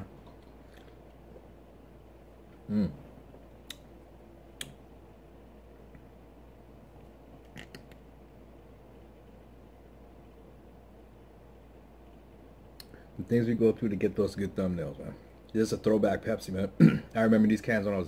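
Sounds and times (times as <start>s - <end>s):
low falling vocal sound: 2.6s - 3.1s.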